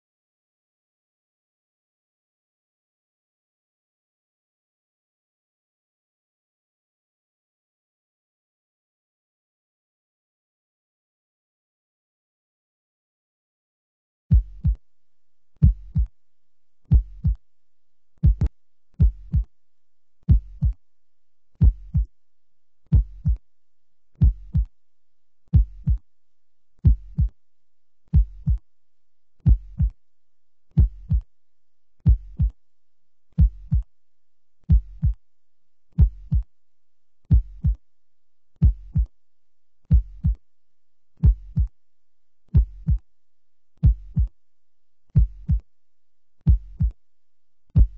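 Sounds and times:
heartbeat thumps: 0:14.3 - 0:14.8, 0:15.6 - 0:16.1, 0:16.9 - 0:17.4, 0:18.2 - 0:19.5, 0:20.3 - 0:20.8, 0:21.6 - 0:22.1, 0:22.9 - 0:23.4, 0:24.2 - 0:24.7, 0:25.5 - 0:26.0, 0:26.8 - 0:27.3, 0:28.1 - 0:28.6, 0:29.4 - 0:30.0, 0:30.8 - 0:31.2, 0:32.0 - 0:32.6, 0:33.4 - 0:33.9, 0:34.7 - 0:35.2, 0:36.0 - 0:36.5, 0:37.3 - 0:37.8, 0:38.6 - 0:39.1, 0:39.9 - 0:40.4, 0:41.2 - 0:41.7, 0:42.5 - 0:43.0, 0:43.8 - 0:44.3, 0:45.2 - 0:45.6, 0:46.5 - 0:47.0.

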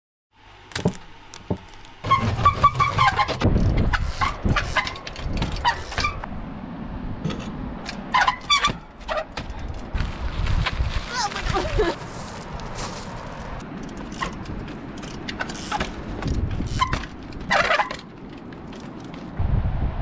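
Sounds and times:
wind rumble on microphone: 0:02.4 - 0:08.8, 0:09.4 - 0:14.8, 0:15.7 - 0:17.6, 0:19.2 - 0:20.0.

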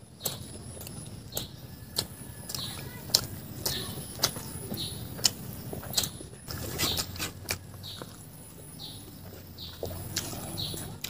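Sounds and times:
chewing and lip smacks: 0:00.2 - 0:04.5, 0:05.2 - 0:08.2, 0:09.3 - 0:11.0
sharp clicks: 0:05.2 - 0:06.2.

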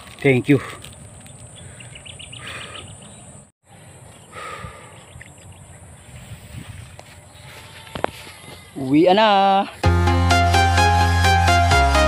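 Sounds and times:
bird chirps: 0:01.2 - 0:04.4.

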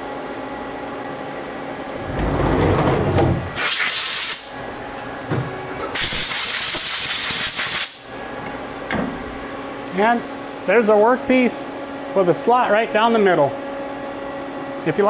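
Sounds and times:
sliding machine door rumbling: 0:01.8 - 0:03.6
compressed air hissing: 0:03.6 - 0:04.5.

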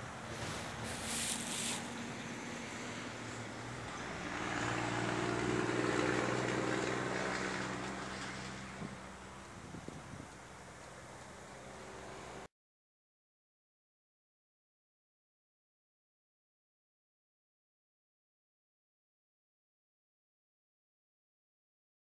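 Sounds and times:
steady low engine hum: 0:00.0 - 0:12.5
vehicle passing by: 0:00.0 - 0:12.5.

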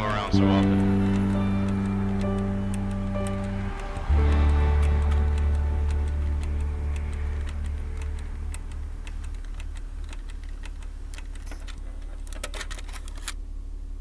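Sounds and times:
music: 0:00.0 - 0:10.2
steady low rumble: 0:00.0 - 0:12.3
keyboard typing: 0:00.0 - 0:12.8.

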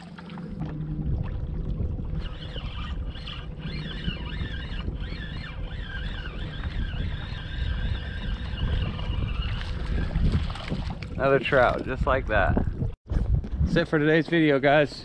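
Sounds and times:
wind rumbling on microphone: 0:00.0 - 0:15.0
fishing reel whirring: 0:02.0 - 0:10.6.

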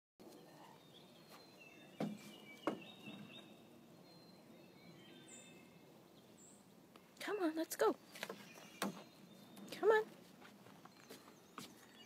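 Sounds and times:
faint birds chirping: 0:00.2 - 0:12.0
stick knocking on wooden railing: 0:02.0 - 0:02.9.

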